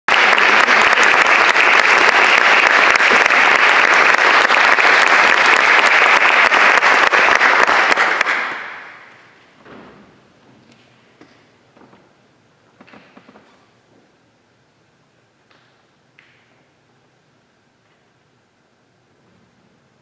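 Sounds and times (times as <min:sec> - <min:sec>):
audience applauding: 0:00.1 - 0:09.4.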